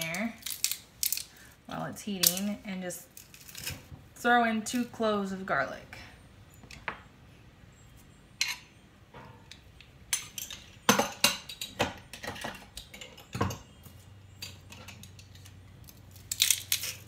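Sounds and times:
metal kitchen utensils clinking: 0:08.4 - 0:13.8.

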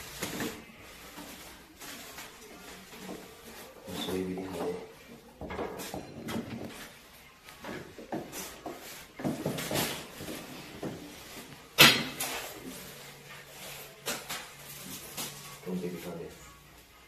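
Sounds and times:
knocks of objects being handled: 0:07.6 - 0:11.2.

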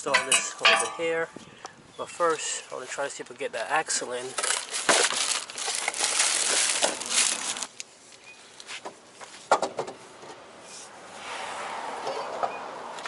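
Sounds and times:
plastic wrapping crinkling: 0:04.2 - 0:07.8.

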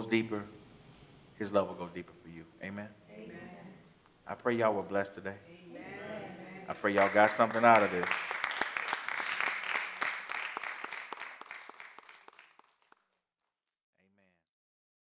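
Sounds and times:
congregation applauding: 0:05.8 - 0:13.0.

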